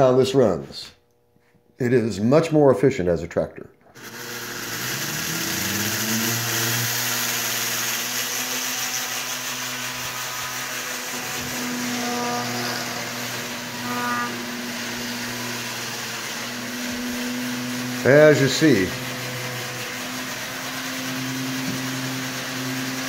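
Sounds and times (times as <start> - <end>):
electric motor spinning propeller: 3.9 - 23.0
short high squeal: 10.3 - 14.9.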